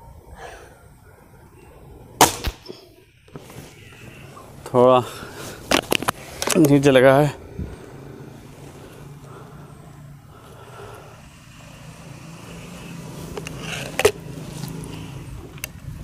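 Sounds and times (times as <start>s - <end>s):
steady low hum: 0.0s - 16.0s
faint handling noise: 2.7s - 9.3s.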